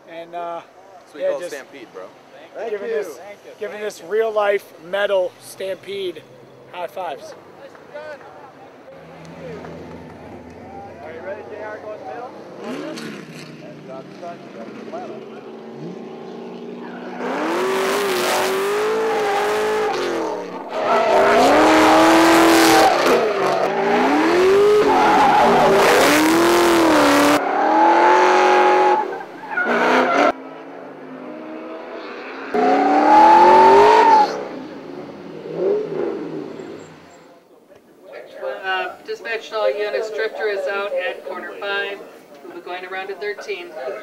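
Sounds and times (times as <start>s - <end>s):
car engine revving hard: 12.4s - 30.4s, 31.1s - 36.9s
tyres squealing: 16.5s - 30.4s.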